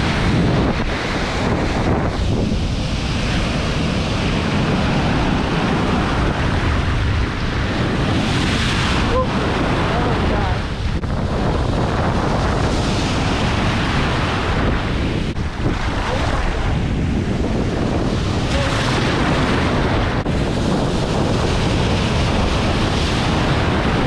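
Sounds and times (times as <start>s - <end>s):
surf breaking and washing: 0.0s - 24.0s.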